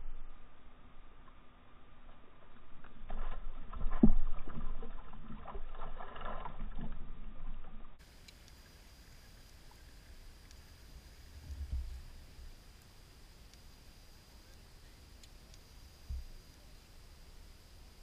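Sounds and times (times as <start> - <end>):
faint steady hush: 8.0 - 18.0.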